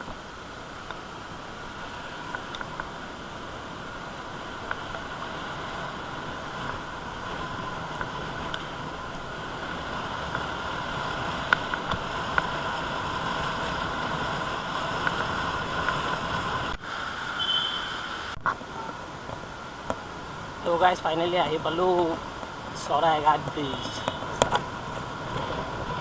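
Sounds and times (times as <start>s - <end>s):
road and wind noise: 0.0s - 26.0s
scooter engine: 1.5s - 16.8s.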